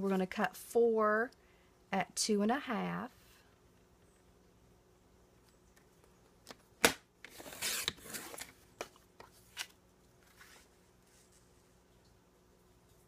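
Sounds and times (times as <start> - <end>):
blade scraping through paper: 7.4 - 8.5.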